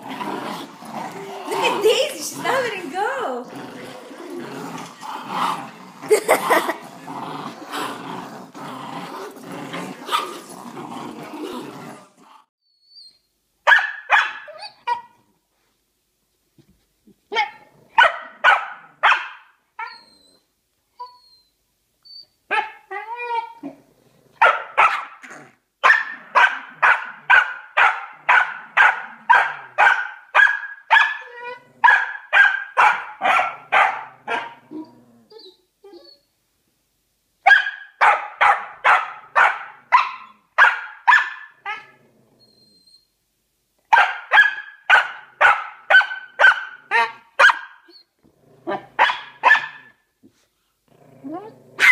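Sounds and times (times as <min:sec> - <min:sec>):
dog barking: 0:13.7 - 0:15.1, 0:18.0 - 0:19.5, 0:24.4 - 0:25.2, 0:25.8 - 0:34.6, 0:37.4 - 0:41.9, 0:43.9 - 0:47.9, 0:48.7 - 0:49.9.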